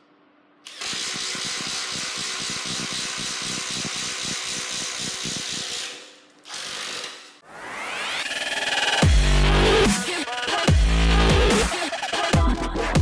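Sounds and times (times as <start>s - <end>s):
impact driver boring into wood: 0.7s - 7.3s.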